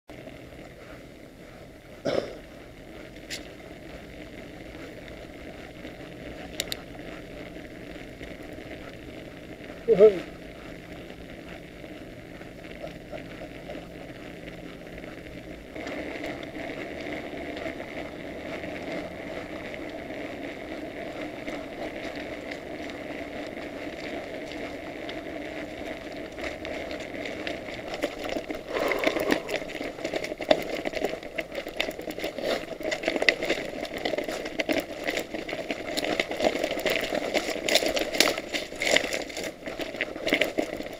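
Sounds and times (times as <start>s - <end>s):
bike tyres rumbling: 0.1s - 40.9s
bike rattling and knocking: 29.7s - 40.9s.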